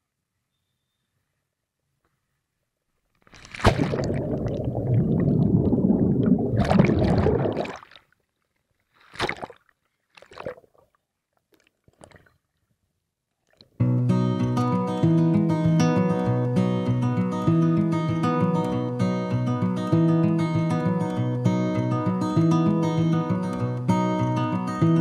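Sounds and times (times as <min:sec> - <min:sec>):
splash into water: 0:03.2 - 0:08.1, 0:09.0 - 0:10.8
short bursts of bubbling: 0:03.3 - 0:08.1, 0:09.0 - 0:10.9, 0:11.5 - 0:12.4
underwater churning and bubbles: 0:03.3 - 0:08.1.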